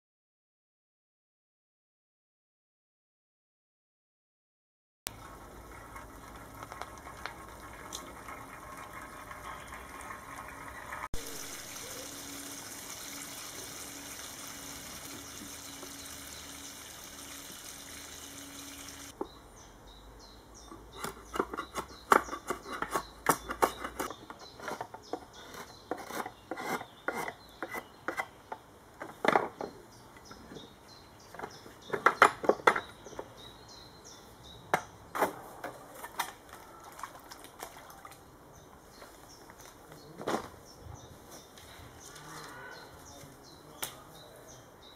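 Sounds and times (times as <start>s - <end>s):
steady hiss: 11.2s - 19.1s
drawknife scraping wooden pole: 21.0s - 28.3s.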